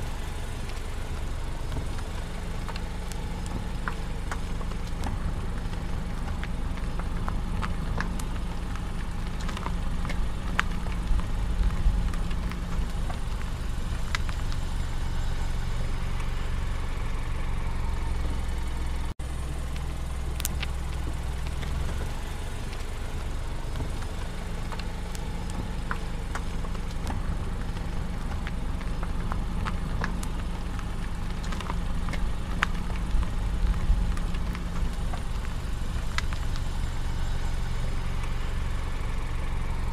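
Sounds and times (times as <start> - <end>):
car engine hum and road noise: 0.0 - 39.9.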